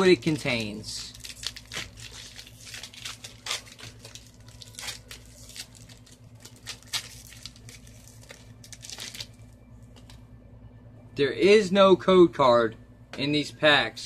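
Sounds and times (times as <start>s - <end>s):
foil wrapper crinkling: 0.0s - 9.5s
low hum: 0.0s - 14.0s.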